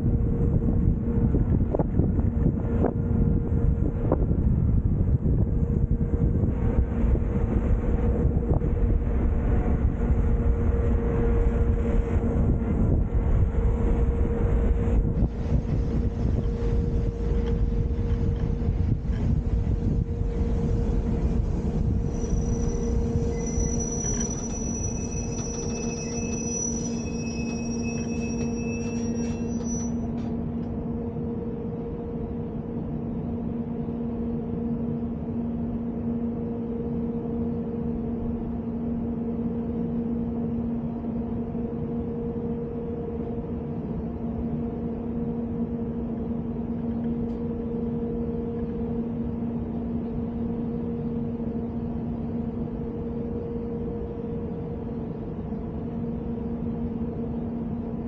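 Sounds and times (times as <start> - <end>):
electric train running: 0.6 - 58.0
high-pitched squeal: 20.7 - 30.3.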